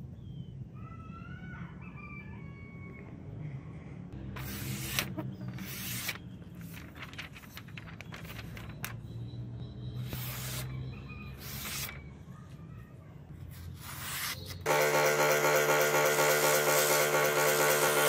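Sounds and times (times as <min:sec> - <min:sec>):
sword blade slicing paper: 0:04.4 - 0:07.1, 0:11.4 - 0:12.0
paper rustling: 0:04.4 - 0:09.0.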